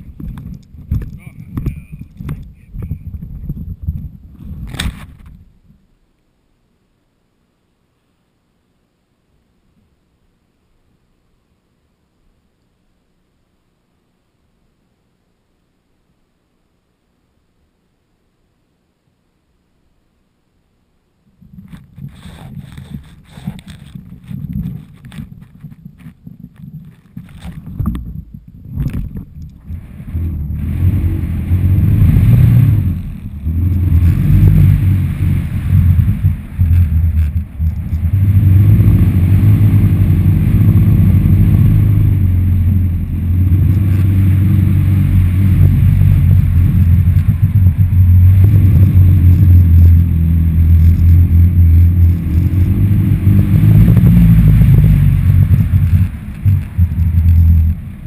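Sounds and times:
wind buffeting microphone: 0.0s - 5.7s, 21.4s - 58.0s.

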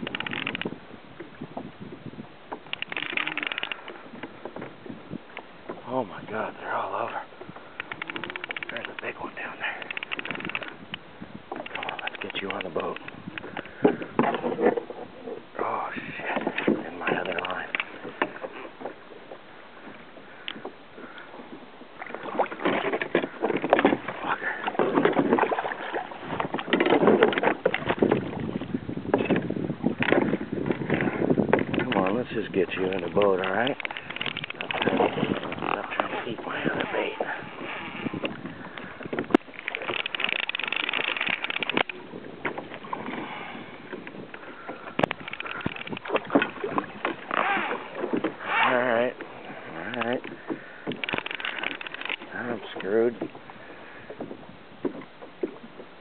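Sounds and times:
fishing reel clicking: 0.0s - 0.7s, 2.7s - 3.8s, 7.8s - 9.1s, 9.7s - 10.8s, 39.6s - 42.0s, 50.9s - 52.2s
fishing rod and reel clatter: 0.0s - 0.8s, 2.6s - 4.7s, 6.4s - 15.0s, 16.2s - 18.9s, 22.0s - 29.4s, 30.0s - 53.4s
water splashing against kayak: 0.0s - 56.0s.

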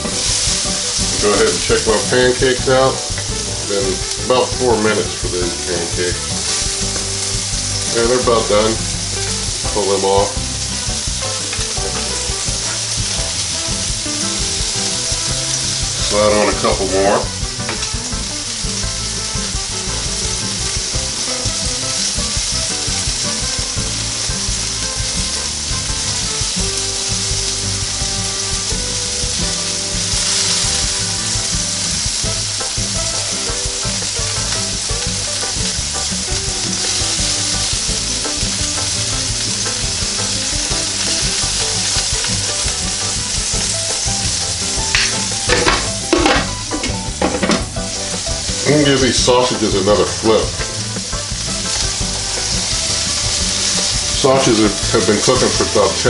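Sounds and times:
food sizzling on skillet: 0.0s - 56.0s.

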